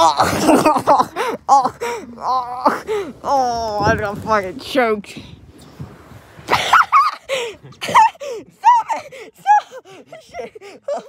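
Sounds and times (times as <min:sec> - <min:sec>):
young man laughing breathlessly: 0:06.5 - 0:11.0.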